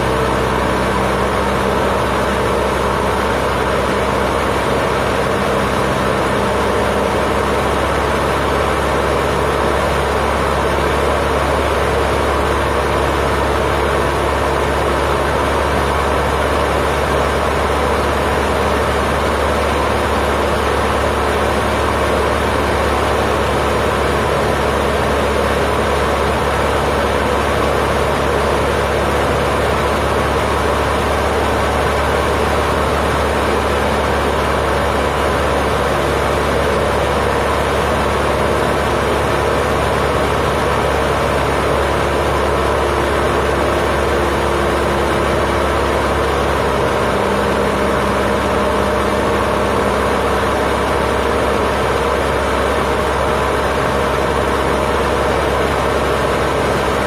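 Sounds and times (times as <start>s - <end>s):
airplane engine drone in cabin: 0.0s - 57.0s.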